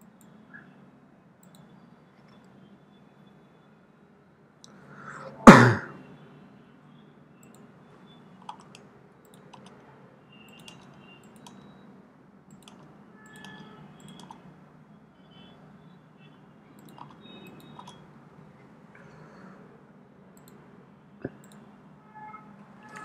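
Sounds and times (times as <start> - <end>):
keyboard and mouse clicks: 1.4 - 2.6, 7.4 - 7.7, 8.4 - 9.8, 10.5 - 11.8, 12.5 - 14.5, 16.8 - 18.1, 20.4 - 20.6, 21.2 - 21.7.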